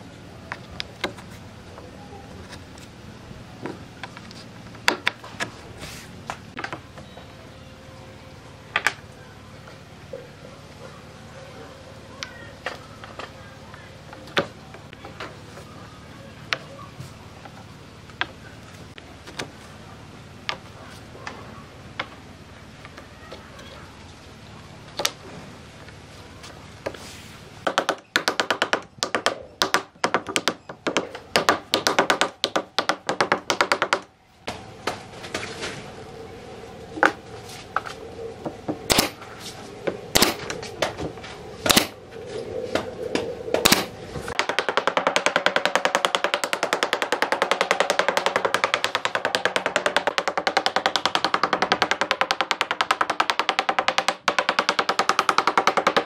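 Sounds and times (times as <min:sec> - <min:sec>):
nail gun firing into wood: 0:38.9 - 0:39.2, 0:40.2 - 0:40.4, 0:41.7 - 0:41.9, 0:43.6 - 0:56.0.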